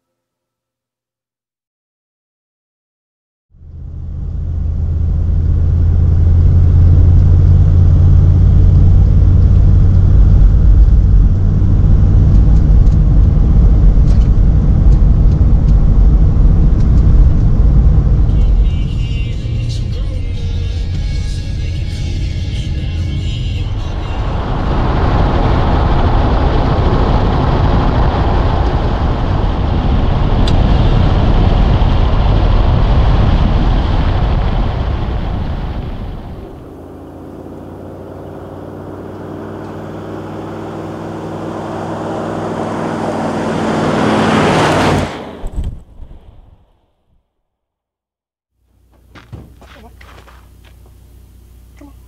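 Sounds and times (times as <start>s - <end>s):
vehicle engine on gravel road: 3.6s - 46.2s, 48.6s - 51.8s
tyre noise on gravel: 48.9s - 51.0s.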